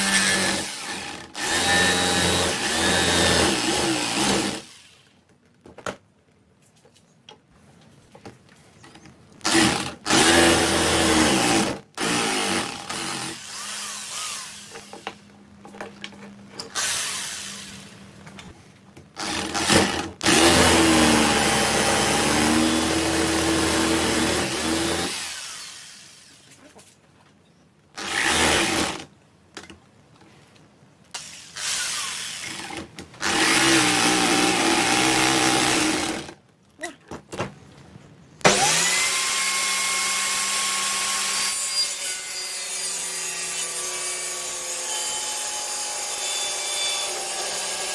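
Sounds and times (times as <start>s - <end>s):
electric jigsaw cutting wood: 0.0s - 5.0s, 9.4s - 15.2s, 16.7s - 17.8s, 19.2s - 26.4s, 28.0s - 29.1s, 31.2s - 36.4s, 38.4s - 47.9s.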